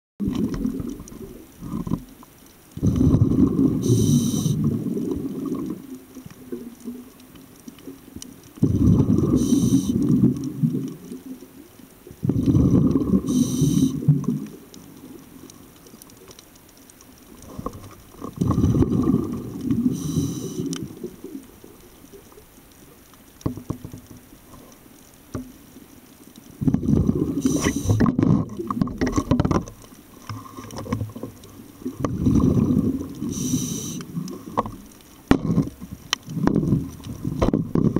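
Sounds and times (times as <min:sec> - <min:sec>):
rush of exhaled bubbles: 0:00.2 - 0:01.8, 0:02.8 - 0:07.0, 0:08.6 - 0:11.4, 0:12.1 - 0:15.2, 0:17.4 - 0:21.8, 0:26.6 - 0:28.9, 0:31.7 - 0:34.6
regulator hiss: 0:03.5 - 0:04.9, 0:09.0 - 0:10.3, 0:13.0 - 0:14.2, 0:19.7 - 0:21.0, 0:27.3 - 0:28.1, 0:33.2 - 0:34.4.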